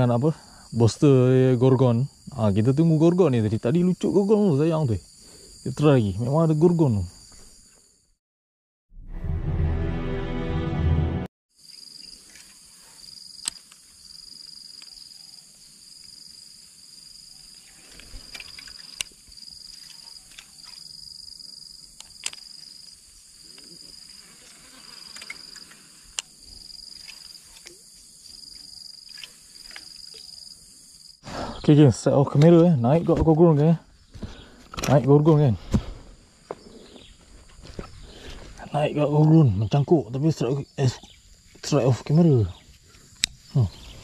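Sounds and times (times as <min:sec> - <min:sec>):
insects chirring: 0:00.0 - 0:08.2, 0:11.6 - 0:44.0
loud music: 0:09.2 - 0:11.3.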